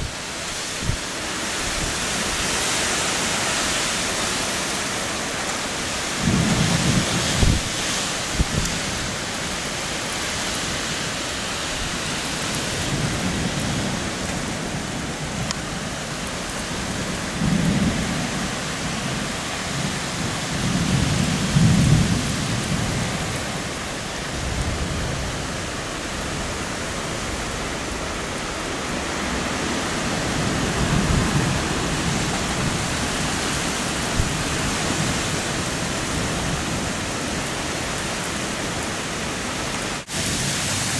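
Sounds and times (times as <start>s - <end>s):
heavy rain pouring: 0.0s - 40.9s
thunder claps and rumbles: 16.8s - 23.6s, 30.3s - 36.6s.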